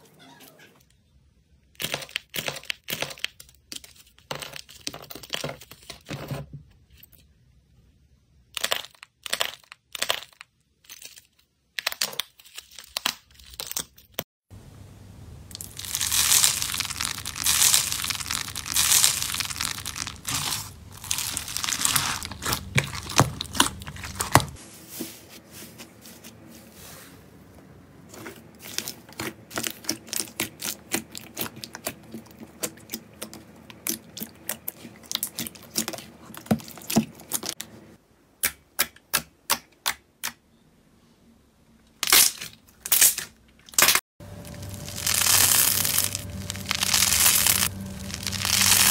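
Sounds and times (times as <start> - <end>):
slime crunching crackle: 15.5 - 24.6, 43.8 - 48.9.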